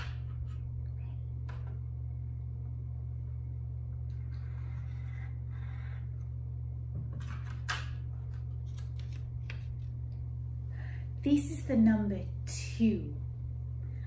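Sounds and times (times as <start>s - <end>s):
steady low hum: 0.0s - 14.0s
pencil scratching on paper: 4.2s - 6.2s.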